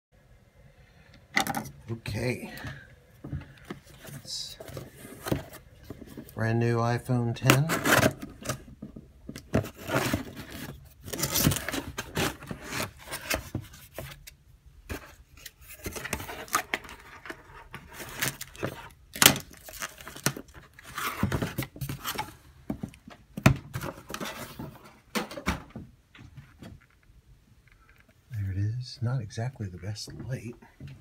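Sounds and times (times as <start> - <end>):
cardboard flaps scraping and rustling: 7.5 - 8.8, 9.5 - 14.3, 14.9 - 22.8, 23.7 - 25.1.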